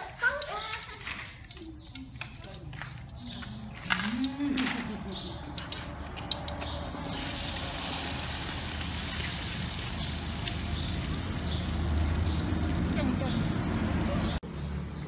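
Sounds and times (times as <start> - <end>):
beans sizzling in hot oil: 6.9 - 13.0.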